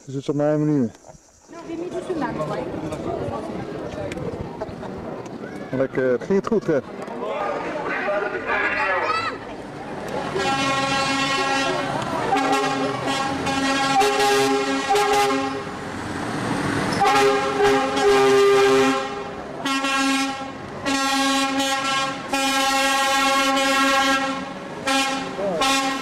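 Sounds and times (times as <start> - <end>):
lorry air horn blasts: 10.3 - 15.7, 17.0 - 26.0.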